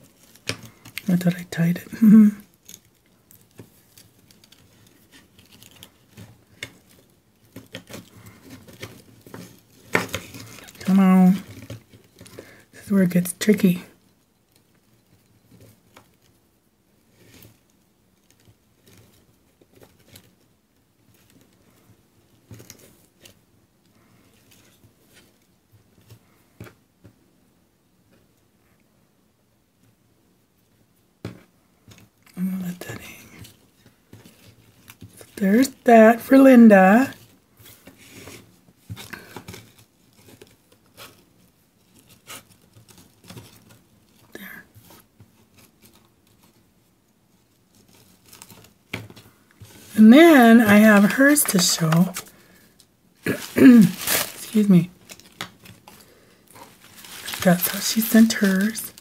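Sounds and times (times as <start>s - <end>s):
rustling of netting and twine: 0.0s - 1.1s, 1.9s - 12.9s, 31.2s - 59.0s.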